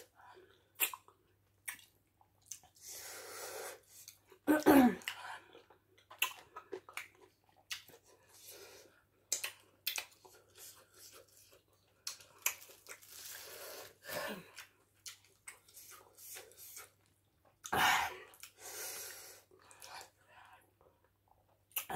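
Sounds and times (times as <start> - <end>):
wet smacking and chewing: 0.8 - 2.8, 5.0 - 8.3, 9.2 - 13.4, 14.5 - 17.7.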